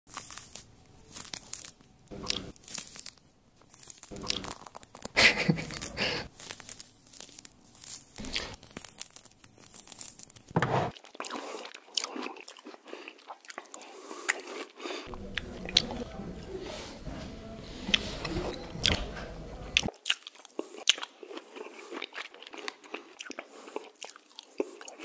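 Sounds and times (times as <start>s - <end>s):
orange peel tearing: 0.1s - 12.6s.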